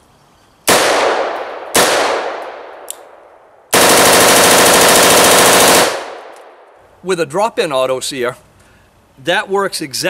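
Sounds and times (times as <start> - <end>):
automatic rifle bursts: 3.7 - 6.1.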